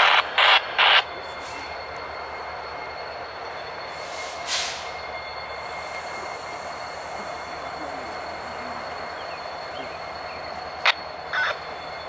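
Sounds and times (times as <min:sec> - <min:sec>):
locomotive engine rumble: 0:00.0 - 0:12.0
short hiss: 0:04.0 - 0:05.0.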